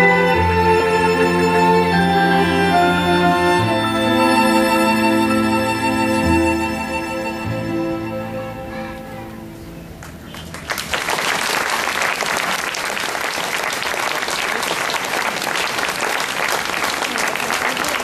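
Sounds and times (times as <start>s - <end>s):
held music notes: 0.0s - 10.3s
audience applause: 10.0s - 18.0s.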